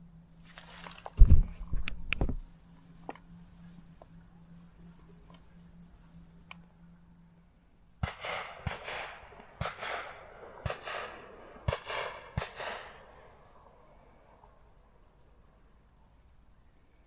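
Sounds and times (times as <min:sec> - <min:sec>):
sharp bangs: 0:08.0 - 0:13.4.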